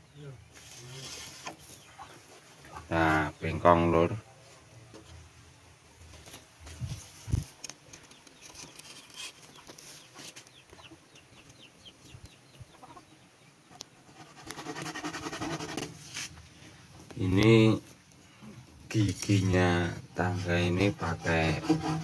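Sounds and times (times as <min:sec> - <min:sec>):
chickens clucking: 0:01.5 - 0:03.4, 0:07.9 - 0:14.7.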